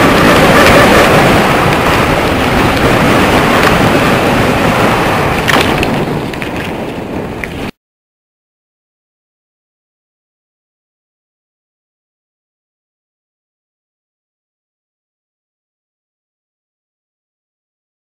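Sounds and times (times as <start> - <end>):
wind rushing over microphone: 0.0 - 7.7.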